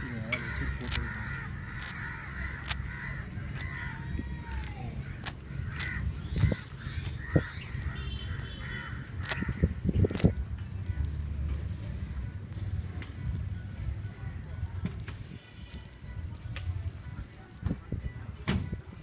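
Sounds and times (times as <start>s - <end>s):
crows cawing: 0.0s - 9.8s.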